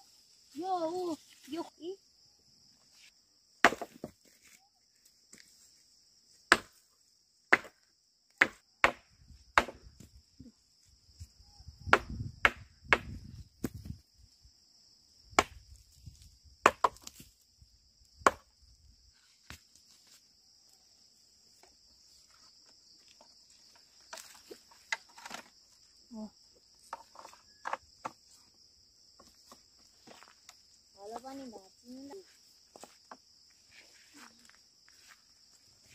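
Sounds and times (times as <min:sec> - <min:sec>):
crickets chirring: 0:00.0 - 0:35.9.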